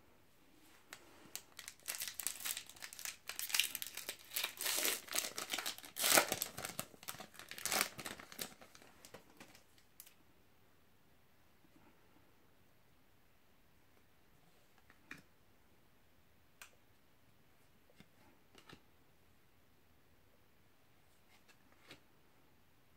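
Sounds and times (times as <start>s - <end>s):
foil wrapper crinkling and tearing: 1.3s - 10.1s.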